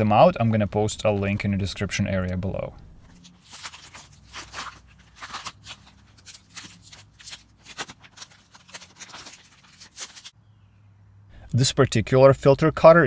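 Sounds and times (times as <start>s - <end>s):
plastic packaging crinkling and tearing: 3.2s - 10.4s.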